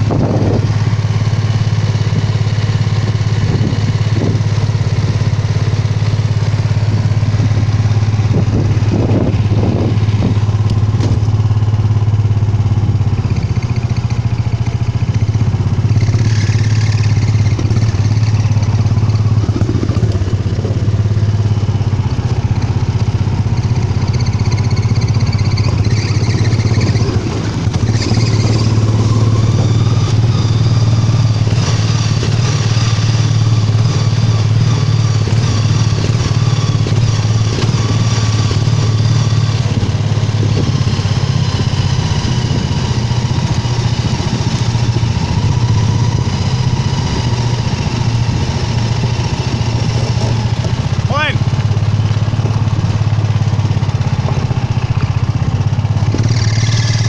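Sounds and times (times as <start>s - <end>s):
go-kart engine running: 0.0s - 57.0s.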